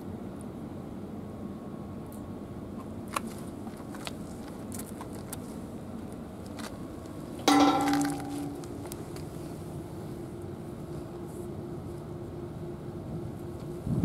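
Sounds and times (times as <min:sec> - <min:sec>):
low background rumble: 0:00.8 - 0:13.5
metal gate clanking: 0:07.5 - 0:09.0.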